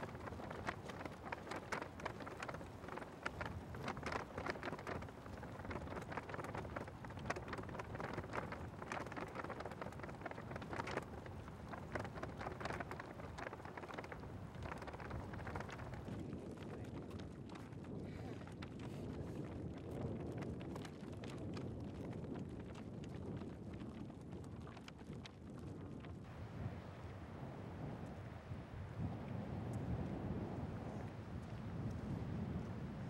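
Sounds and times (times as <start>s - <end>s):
steady low water rush: 0.0s - 19.6s, 26.2s - 33.0s.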